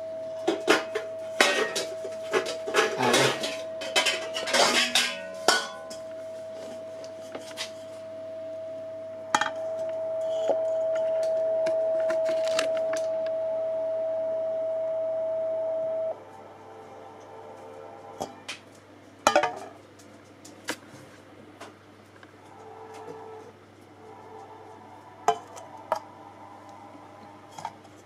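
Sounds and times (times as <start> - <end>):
steady electronic tone: 0.0 - 18.5.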